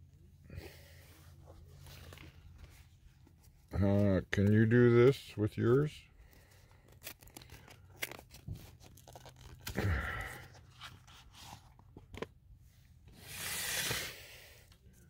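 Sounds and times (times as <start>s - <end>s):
wrapping crinkling: 6.3s - 12.3s
cardboard box being pulled open: 13.2s - 14.2s.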